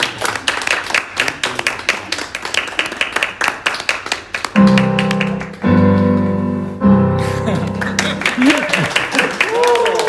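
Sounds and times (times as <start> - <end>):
electric keyboard chord: 4.6 - 8.4.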